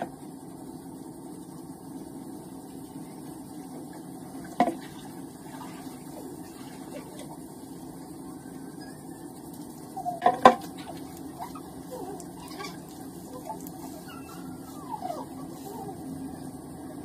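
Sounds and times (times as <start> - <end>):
steady low hum: 0.0 - 17.0
wet rubbing of hair: 10.6 - 16.0.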